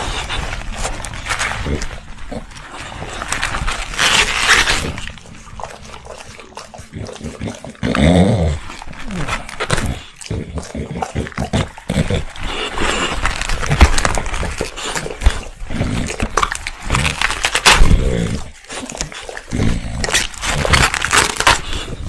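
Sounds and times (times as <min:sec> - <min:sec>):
dog chewing crunchy leaves: 0:00.0 - 0:22.0
dog grunting: 0:00.0 - 0:22.0.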